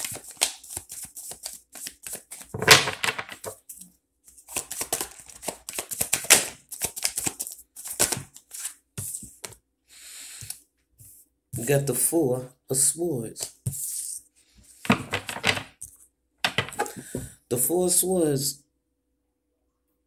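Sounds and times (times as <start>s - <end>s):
cards being shuffled: 0.0s - 9.6s, 13.4s - 13.9s, 14.7s - 17.3s.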